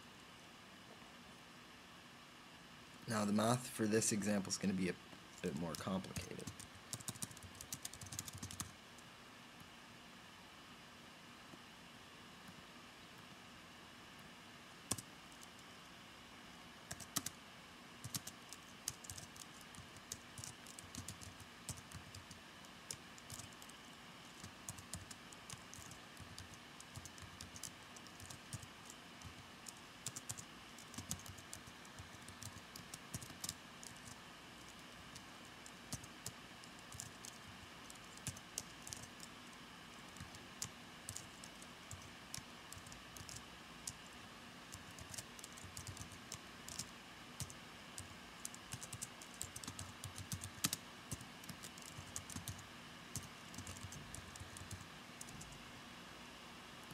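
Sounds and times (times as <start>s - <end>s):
faint steady hum: 0.0s - 56.9s
typing on computer keyboard: 5.5s - 8.7s, 14.9s - 15.6s, 16.9s - 17.4s, 18.0s - 35.2s, 35.9s - 39.3s, 40.1s - 44.0s, 44.7s - 55.6s.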